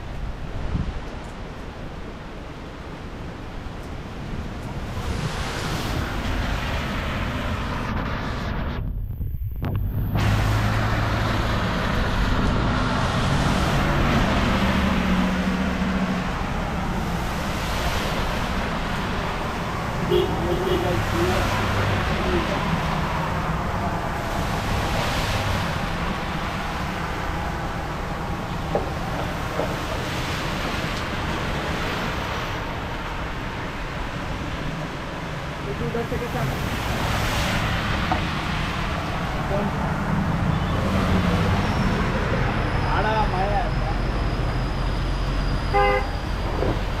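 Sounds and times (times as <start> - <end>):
wind buffeting the microphone: 4.7 - 10.5
tyres swishing through water: 10.1 - 28.3, 36.2 - 40.1.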